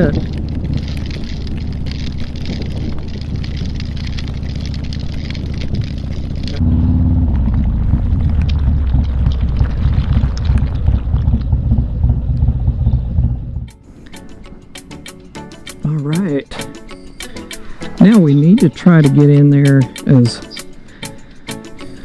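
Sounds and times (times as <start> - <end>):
motorcycle engine running: 0.0 - 13.7
wind and wet road rush: 0.0 - 13.7.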